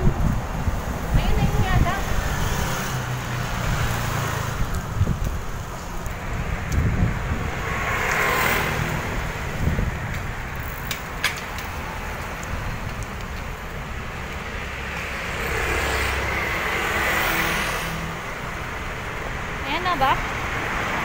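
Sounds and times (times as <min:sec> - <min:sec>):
road vehicles passing: 0:00.0 - 0:21.0.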